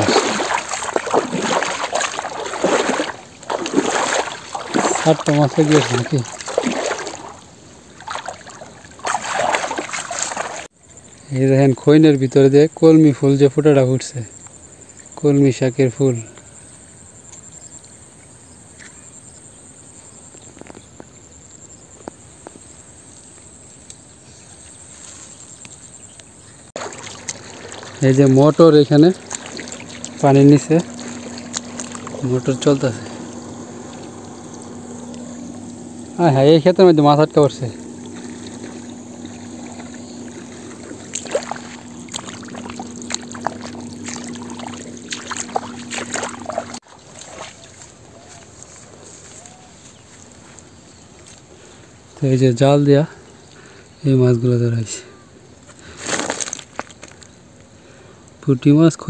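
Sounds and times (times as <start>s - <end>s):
sharp splashes and drips: 0.0s - 10.7s, 26.8s - 48.0s
water pump motor humming: 0.0s - 10.7s, 26.8s - 48.4s
water spurting and splashing: 0.0s - 10.7s, 26.8s - 48.5s.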